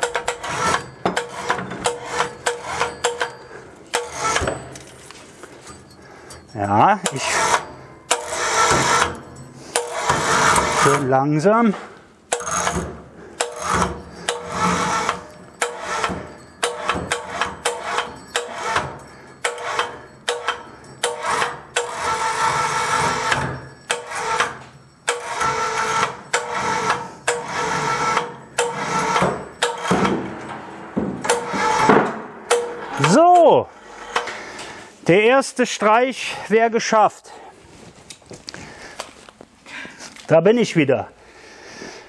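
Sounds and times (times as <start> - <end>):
clicks and knocks: 0.0 - 5.0, 23.0 - 33.5
electric cable hoist humming: 0.0 - 11.1, 11.8 - 35.0.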